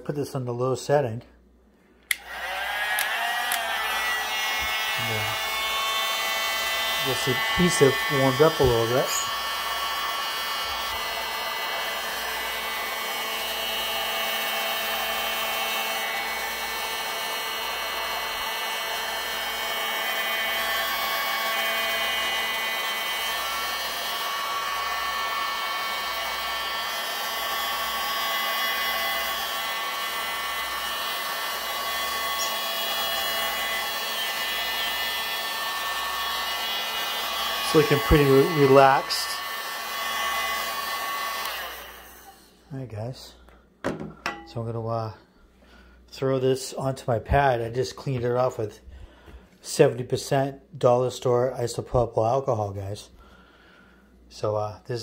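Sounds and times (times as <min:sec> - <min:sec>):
heat gun blowing: 0:02.0 - 0:44.4.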